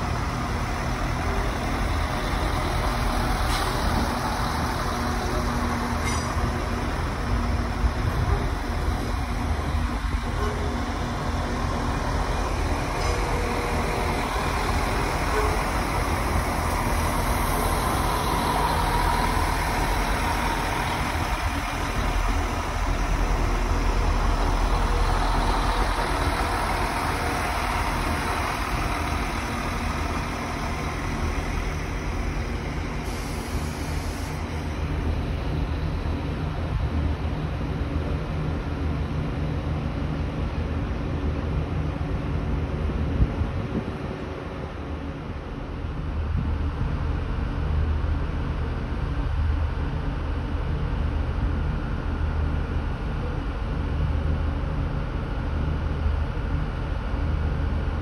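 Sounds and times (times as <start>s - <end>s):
diesel engine rumble: 0.0s - 58.0s
train rolling past on tracks: 0.0s - 58.0s.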